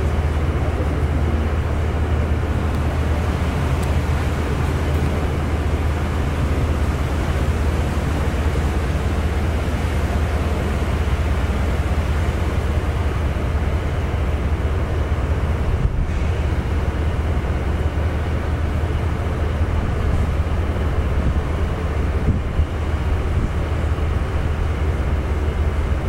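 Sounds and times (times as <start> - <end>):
ship engine droning: 0.0 - 26.0.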